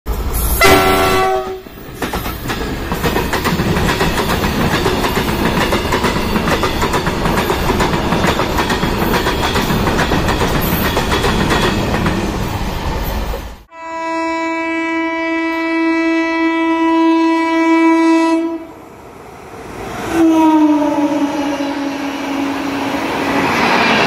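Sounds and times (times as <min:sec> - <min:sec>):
freight train rumbling past: 0:00.1 - 0:24.0
locomotive horn blast: 0:00.6 - 0:01.7, 0:13.7 - 0:18.8, 0:20.1 - 0:23.0.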